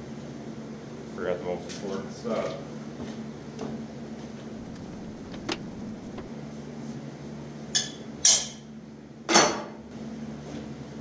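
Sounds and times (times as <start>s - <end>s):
steady low hum: 2.7s - 8.1s.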